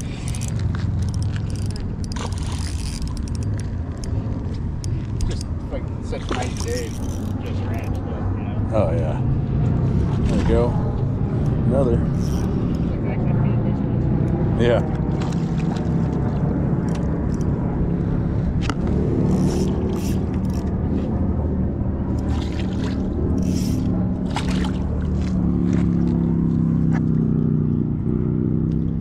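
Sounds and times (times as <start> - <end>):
low motor hum: 0.0 - 29.0
fish splashing at surface: 22.2 - 26.0.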